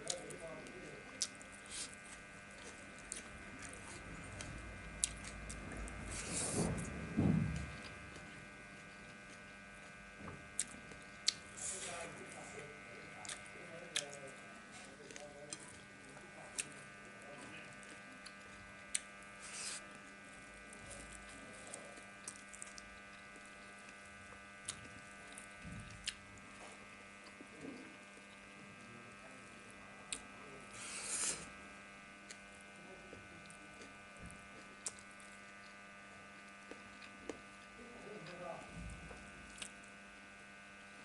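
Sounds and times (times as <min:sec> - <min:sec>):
chewing: 0:00.0 - 0:06.9, 0:10.6 - 0:12.4, 0:13.0 - 0:28.4, 0:33.1 - 0:35.8, 0:36.4 - 0:38.4, 0:39.1 - 0:39.8
electrical hum with whining tones: 0:00.0 - 0:41.0.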